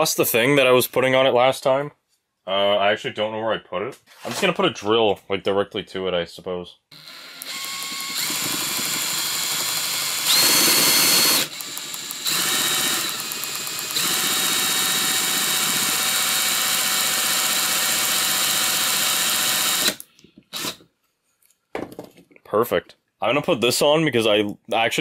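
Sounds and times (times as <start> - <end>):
cordless drill whine: 6.9 - 20.8.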